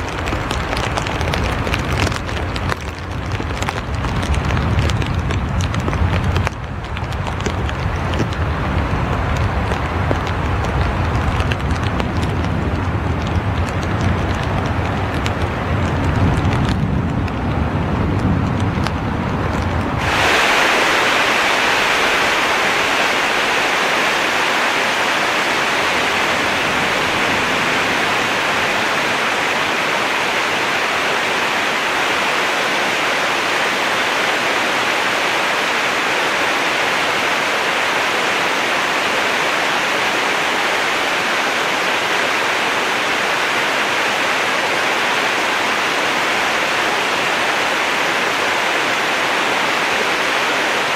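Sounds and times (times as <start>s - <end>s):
river water rushing: 20.0s - 50.9s.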